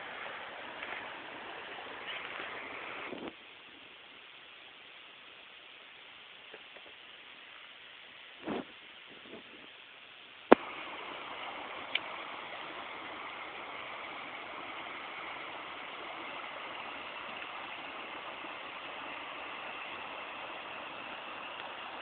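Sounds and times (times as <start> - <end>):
creek water rushing: 0.0 - 9.1, 9.8 - 22.0.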